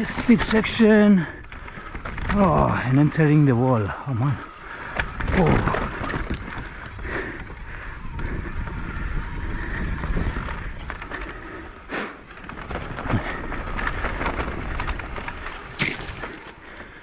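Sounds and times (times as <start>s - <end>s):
bike clicks and rattles: 0.0s - 17.0s
bike tyres crunching over dirt: 0.0s - 17.0s
wind on microphone: 5.0s - 11.8s.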